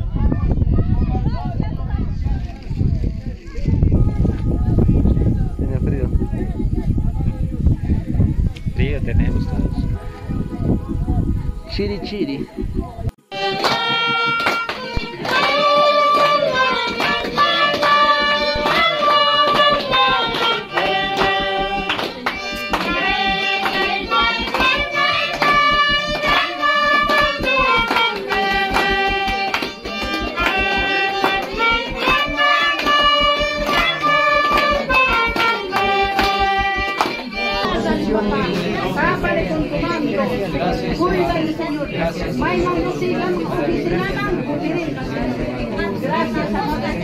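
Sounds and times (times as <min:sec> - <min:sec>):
flute: 0:00.0 - 0:45.6
violin folk tune: 0:03.4 - 0:47.0
people clapping in time: 0:12.4 - 0:47.0.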